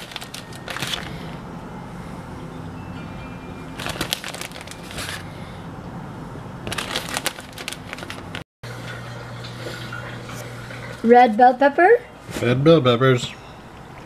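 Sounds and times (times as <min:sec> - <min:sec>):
cheese crinkling and rustling: 0:00.0 - 0:01.3, 0:03.8 - 0:05.3, 0:06.7 - 0:08.4.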